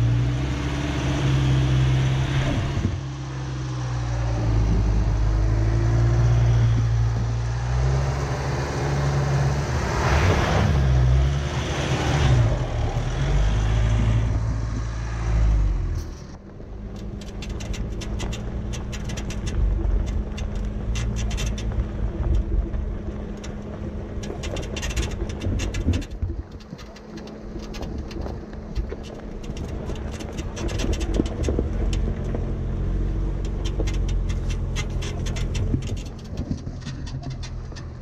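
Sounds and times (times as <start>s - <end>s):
off-road vehicle engine running: 0.0s - 38.0s
rapid crackling ticks: 16.0s - 32.6s, 33.3s - 38.0s.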